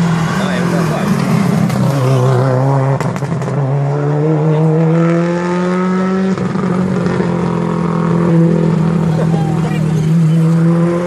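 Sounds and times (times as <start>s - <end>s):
rally car engine accelerating: 0.0s - 11.0s.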